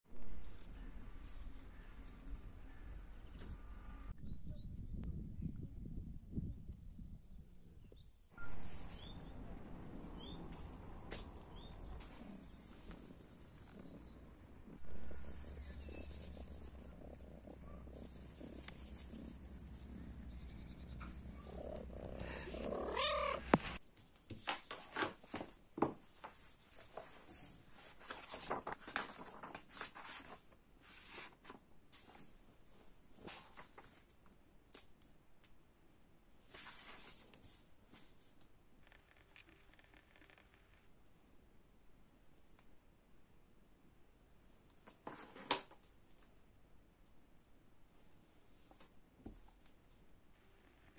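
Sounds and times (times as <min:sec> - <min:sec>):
faint bird chirps: 0:11.5 - 0:23.5
cat purring: 0:13.8 - 0:23.8
cat meowing: 0:21.4 - 0:23.8.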